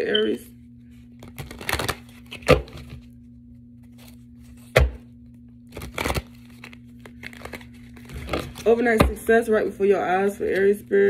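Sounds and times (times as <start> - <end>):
steady low hum: 0.0 - 11.0
cards snapping: 1.2 - 3.0, 5.7 - 8.6
cards riffle shuffling: 5.7 - 8.7
cards slapping: 5.7 - 8.7.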